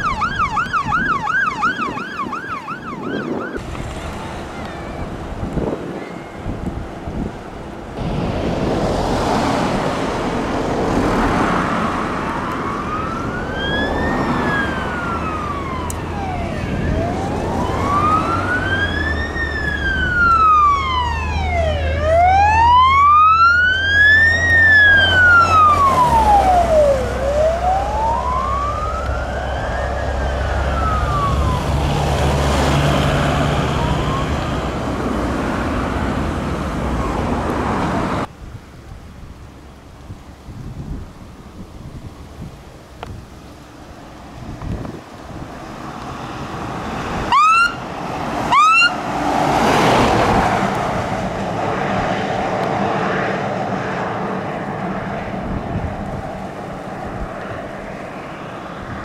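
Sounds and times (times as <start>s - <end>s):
fire engine siren wailing: 0.0s - 6.7s, 11.7s - 36.2s, 46.5s - 54.9s
truck diesel engine hum: 0.0s - 59.0s.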